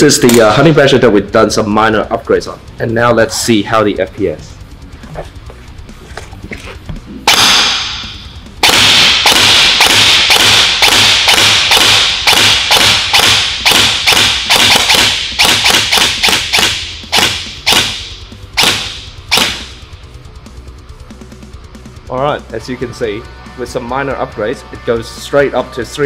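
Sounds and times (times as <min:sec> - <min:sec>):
gel blaster shots cracking: 0:07.3 - 0:19.7.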